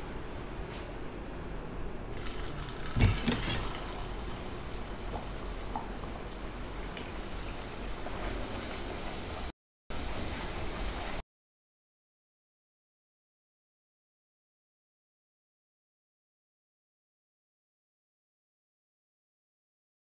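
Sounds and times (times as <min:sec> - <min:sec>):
dough sizzling in hot oil: 0:02.2 - 0:11.2.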